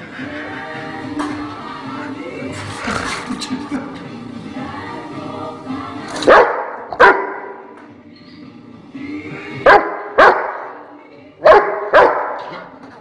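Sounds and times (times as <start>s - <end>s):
dog barking: 6.3s - 7.6s, 9.6s - 10.8s, 11.4s - 12.6s.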